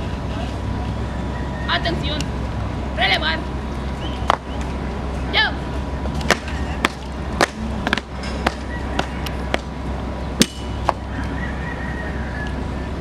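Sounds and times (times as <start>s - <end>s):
steady low rumble: 0.0s - 13.0s
shoes stamping in unison: 6.3s - 9.7s.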